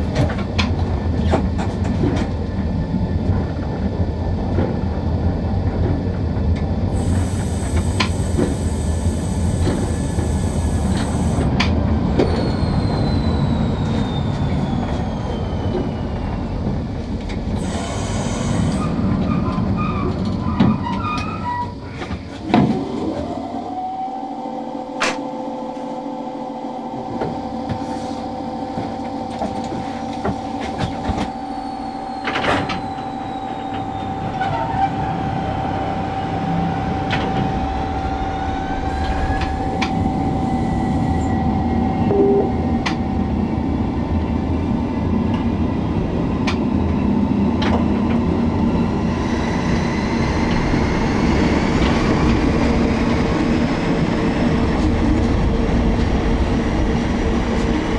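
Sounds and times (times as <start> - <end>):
electric locomotive running hum: 0.0 - 57.9
rising whines: 22.4 - 45.2.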